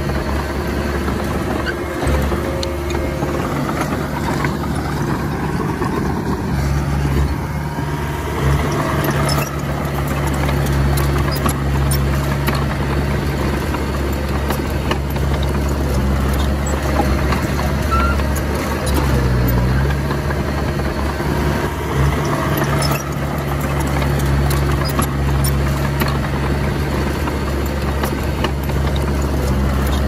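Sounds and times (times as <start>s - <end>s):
bulldozer diesel engine running: 0.0s - 30.0s
metallic clicks and clanks: 22.0s - 30.0s.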